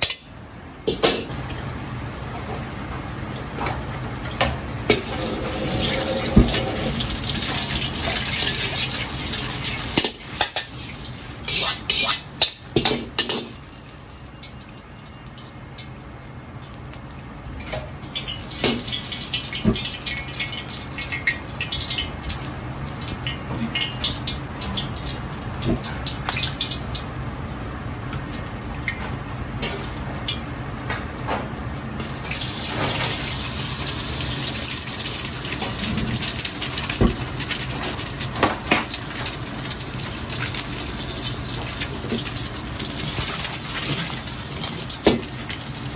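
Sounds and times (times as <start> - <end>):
running water rushing: 5.0 - 9.6.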